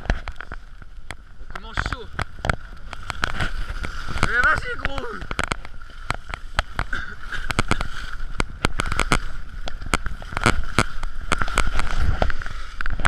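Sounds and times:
sharp clatters and knocks: 0.0s - 13.0s.

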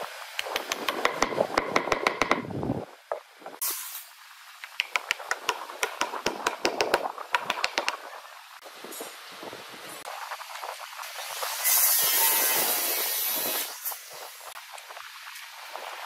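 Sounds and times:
rapid wooden tapping: 0.4s - 2.5s, 4.6s - 8.0s.

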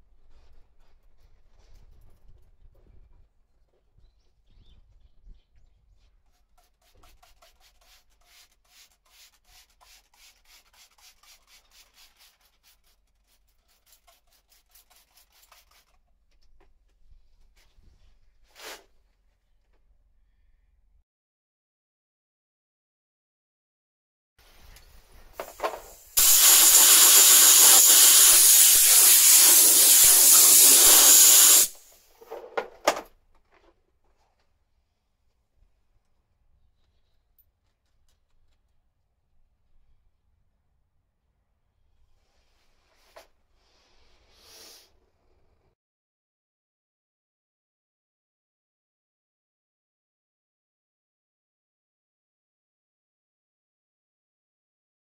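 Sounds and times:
brush strokes scratching: 6.2s - 16.0s
compressed air hissing: 24.6s - 32.1s, 43.6s - 44.9s.

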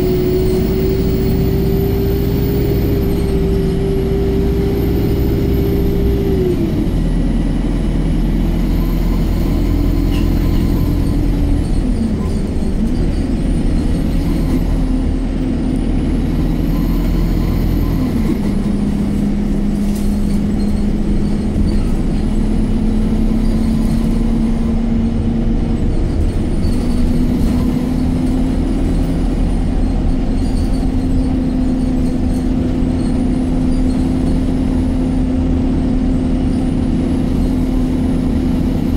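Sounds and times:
bus engine drone: 0.0s - 38.9s
road noise: 0.0s - 38.9s.

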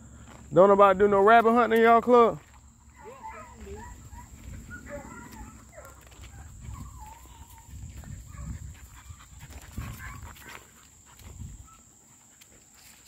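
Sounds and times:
distant hounds baying: 2.8s - 12.4s.

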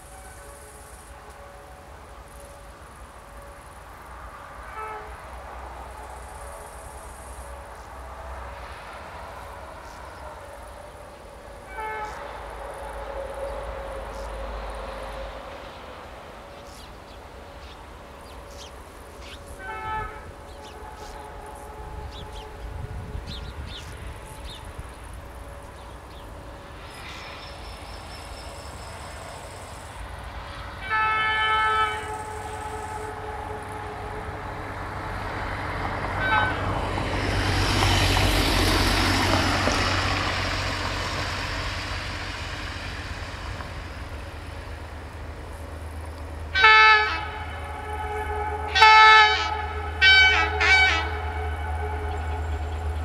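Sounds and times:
locomotive horn blasts: 0.0s - 53.0s
low engine rumble: 31.8s - 53.0s.

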